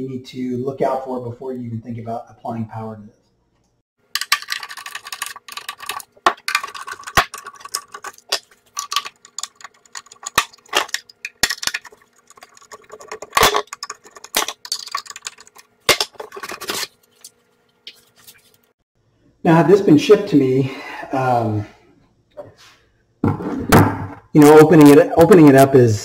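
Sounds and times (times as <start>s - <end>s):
screws clicking and clinking: 4.2s - 16.9s.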